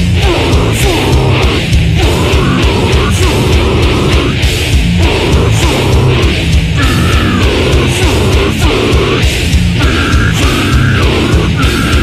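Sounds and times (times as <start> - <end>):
distorted electric guitars: 0.0 - 12.0
fast dense drumming: 0.0 - 12.0.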